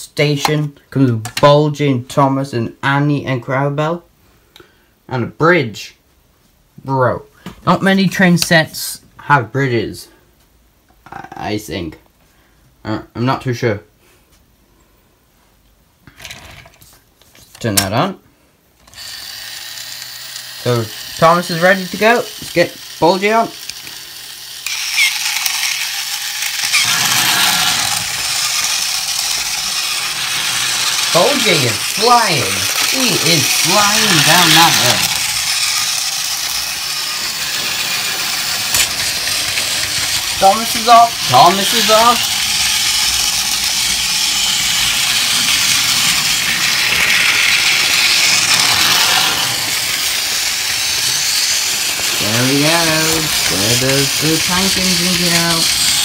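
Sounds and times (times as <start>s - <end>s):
toy motors and gears whirring: 16.1s - 17.9s, 18.8s - 56.0s.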